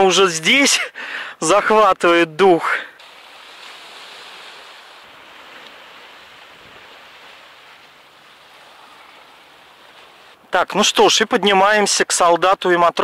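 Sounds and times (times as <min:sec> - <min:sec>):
sea surf: 0:03.0 - 0:11.2.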